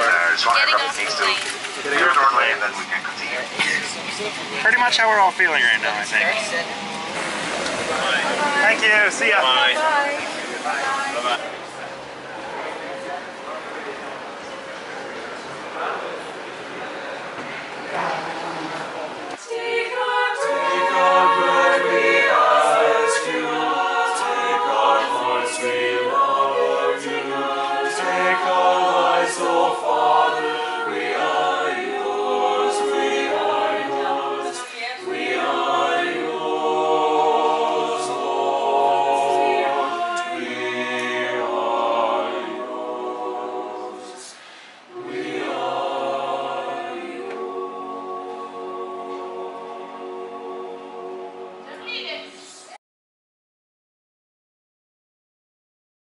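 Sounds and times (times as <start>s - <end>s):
mixed choir singing a cappella: 6.7s - 11.6s, 17.9s - 52.8s.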